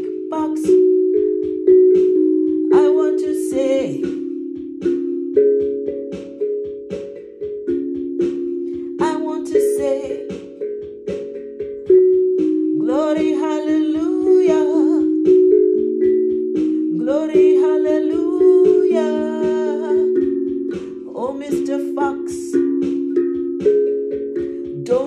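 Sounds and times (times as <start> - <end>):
woman singing wordless phrases: 0.0 - 0.9, 2.7 - 4.3, 9.0 - 10.4, 12.8 - 15.3, 16.9 - 20.2, 21.0 - 22.7, 24.8 - 25.0
handpan played with mallets: 0.0 - 25.0.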